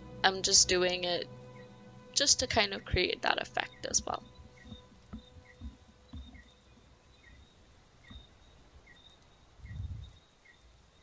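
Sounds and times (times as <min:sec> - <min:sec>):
soft low bump: 0:04.0 - 0:08.3, 0:09.6 - 0:10.2.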